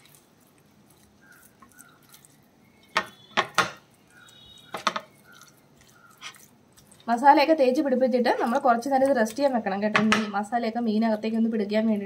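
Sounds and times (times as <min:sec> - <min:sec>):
hands squishing paste into fish: 0:00.0 - 0:07.2.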